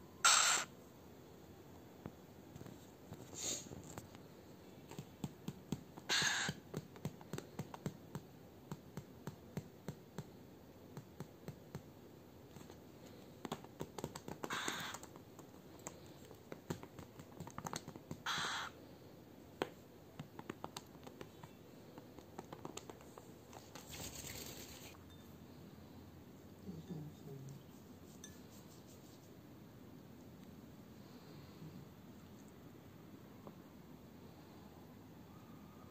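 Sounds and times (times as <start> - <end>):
bird hissing: 0.2 - 0.7, 6.1 - 6.6, 14.5 - 15.0, 18.3 - 18.8
bird claws clicking on plastic: 13.4 - 16.0.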